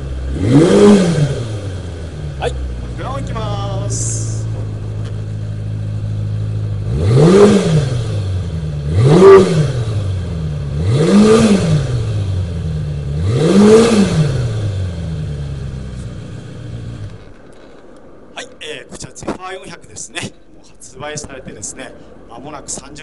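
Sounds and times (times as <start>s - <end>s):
motorcycle engine idling and revving: 0.0s - 18.2s.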